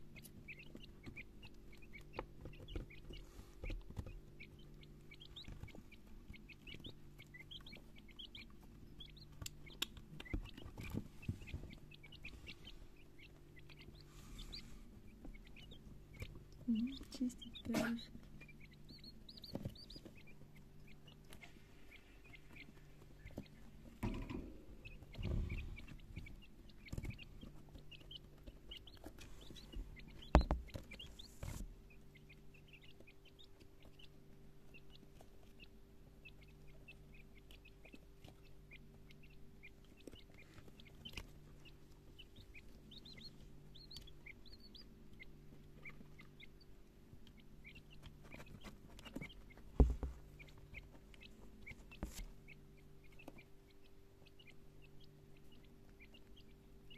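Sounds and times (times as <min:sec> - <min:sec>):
chicks peeping: 0:00.0 - 0:56.9
thumps: 0:23.3 - 0:27.5.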